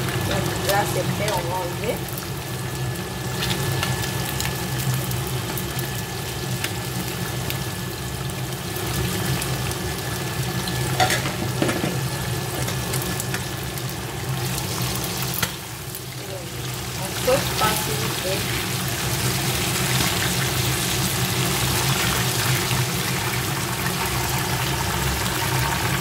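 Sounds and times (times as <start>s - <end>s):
fish deep-frying in oil: 0.0s - 26.0s
metal utensils clinking on pan: 11.0s - 11.9s.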